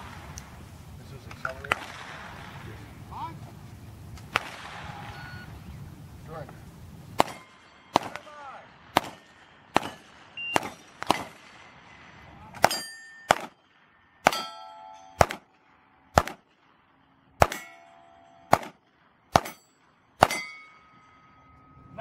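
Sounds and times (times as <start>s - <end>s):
handgun shots: 7.2s - 8.2s, 9.0s - 11.4s, 12.6s - 13.6s, 14.2s - 14.6s, 15.2s - 15.5s, 16.2s - 16.4s, 17.4s - 17.9s, 18.5s - 19.6s, 20.2s - 20.5s
steel plate clanging: 12.7s - 13.3s, 14.2s - 15.2s, 17.4s - 18.6s, 19.4s - 22.0s.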